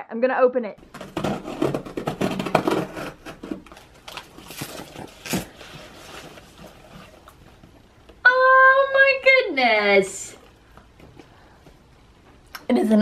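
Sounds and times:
cardboard and packing rustling: 0.8 - 8.0.

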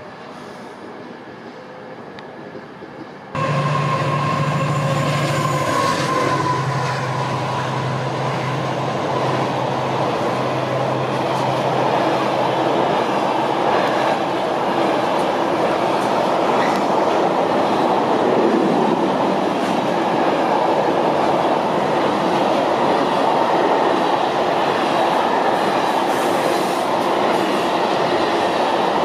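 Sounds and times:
freight train wheels on rail: 0.0 - 29.0.

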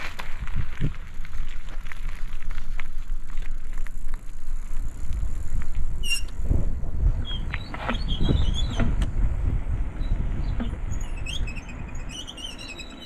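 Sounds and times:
bicycle tyres on asphalt: 0.0 - 13.0
wind rumbling on microphone: 0.0 - 13.0
high squeak: 6.0 - 6.4, 7.2 - 8.9, 10.5 - 13.0.

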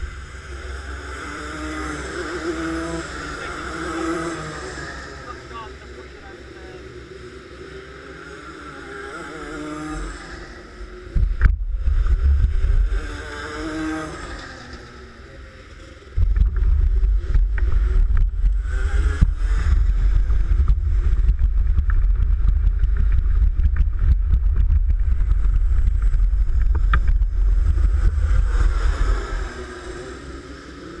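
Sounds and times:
kart engines passing: 0.0 - 31.0
wind buffeting microphone: 16.1 - 29.7.

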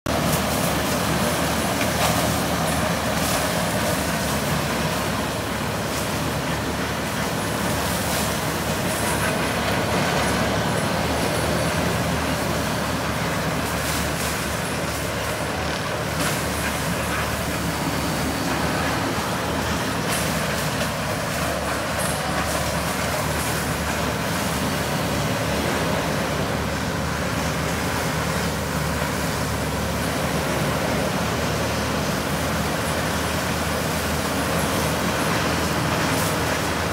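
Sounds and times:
forest mulcher chewing brush: 0.1 - 36.9.

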